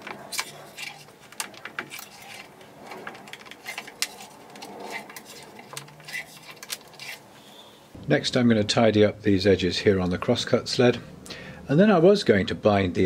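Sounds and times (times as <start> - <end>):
metal blade scraping on wood: 0.0 - 7.3.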